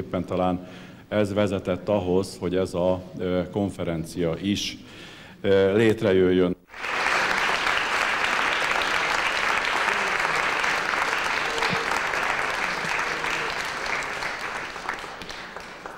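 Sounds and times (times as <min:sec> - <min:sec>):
audience applauding: 0:06.7 - 0:15.9.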